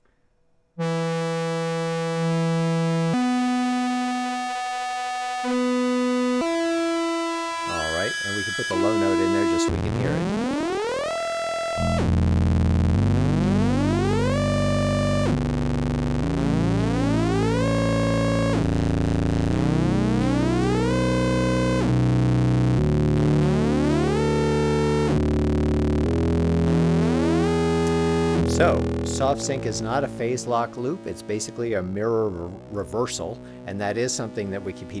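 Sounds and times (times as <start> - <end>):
sustained low synthesizer note: 0.8 - 3.2, 11.2 - 35.0.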